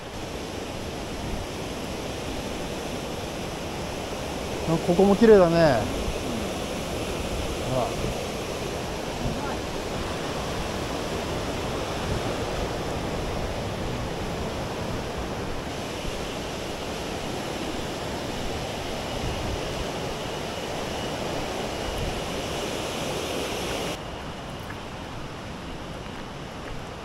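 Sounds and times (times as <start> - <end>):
stream rushing over rocks: 0.0 - 27.0.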